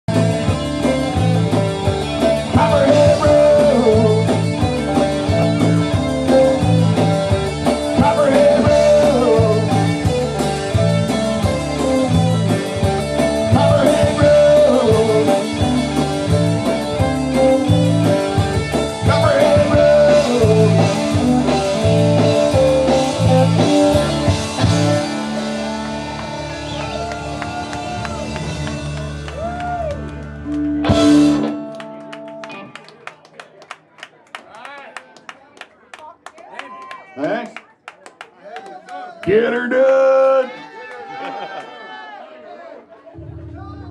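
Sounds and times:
electric guitar lead bending: 0:00.1 - 0:33.0, 0:43.2 - 0:43.9
live blues-rock band playing: 0:00.1 - 0:33.8.

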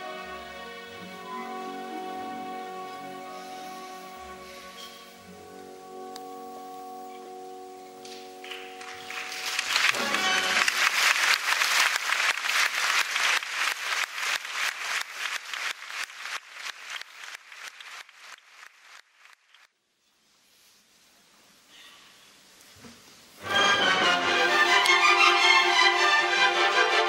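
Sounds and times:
audience applause: 0:08.4 - 0:19.6.

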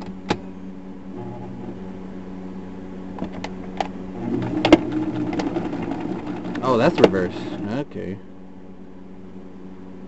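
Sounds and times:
sewing machine motor humming: 0:04.2 - 0:07.8.

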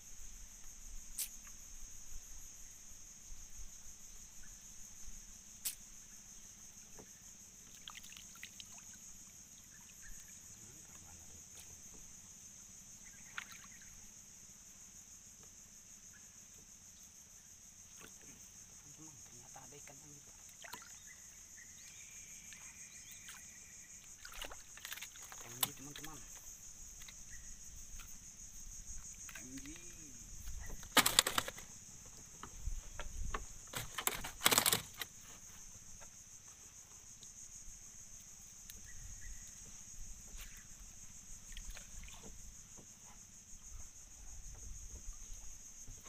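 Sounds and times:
insect chorus trilling: 0:00.0 - 0:46.0
sharp clicks and knocks: 0:30.7 - 0:31.7, 0:32.4 - 0:35.1.

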